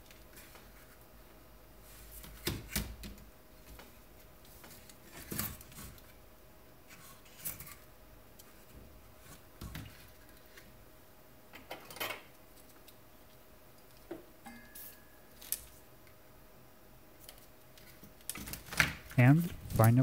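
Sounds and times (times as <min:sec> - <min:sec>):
circuit boards rustling on paper: 0:17.1 - 0:20.0.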